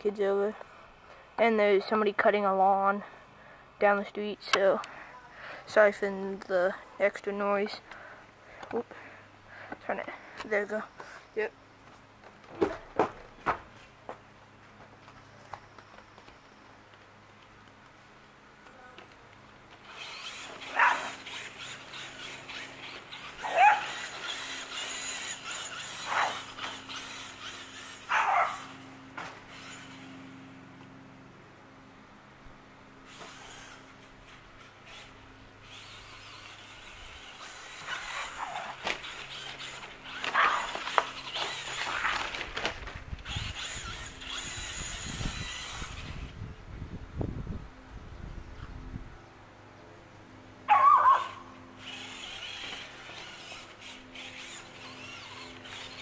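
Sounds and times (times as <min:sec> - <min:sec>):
rc car driving on grass: 0:00.0 - 0:03.1, 0:03.8 - 0:56.0
electric motor whirring: 0:19.0 - 0:31.2, 0:32.2 - 0:47.6, 0:51.0 - 0:56.0
dog barking: 0:20.7 - 0:21.1, 0:23.4 - 0:23.9, 0:28.1 - 0:28.6, 0:50.7 - 0:51.4
wind rumble on microphone: 0:42.8 - 0:49.3.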